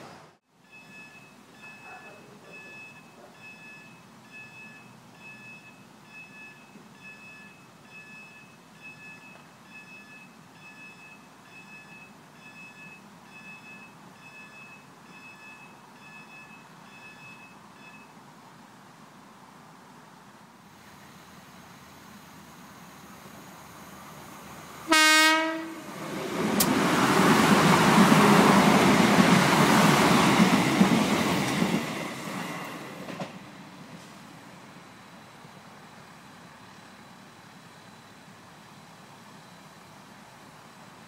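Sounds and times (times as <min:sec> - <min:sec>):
level crossing alarm bleeping: 0:00.7 - 0:18.1.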